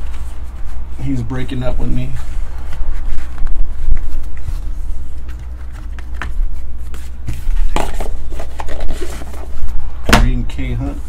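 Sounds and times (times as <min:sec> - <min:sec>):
steady low hum: 0:00.0 - 0:11.0
cardboard box rustling: 0:04.0 - 0:09.6.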